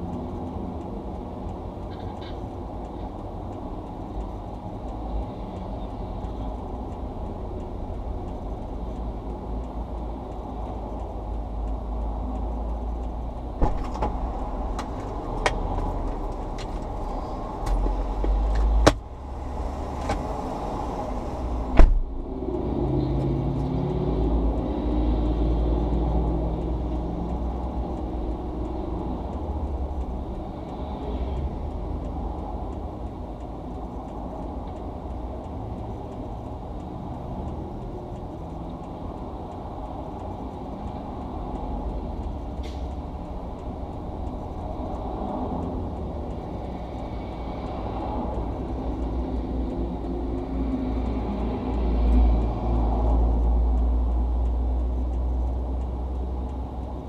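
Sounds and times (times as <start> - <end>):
muffled highway traffic rumble: 0.0 - 57.0
sharp clicks and knocks: 7.6 - 21.0, 21.6 - 22.4.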